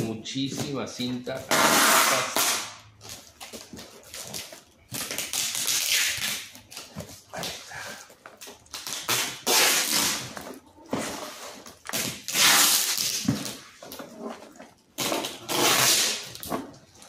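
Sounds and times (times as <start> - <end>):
packing tape tearing screech: 1.5 - 3.2, 4.1 - 6.7, 8.7 - 10.4, 11.1 - 13.8, 15.0 - 16.5.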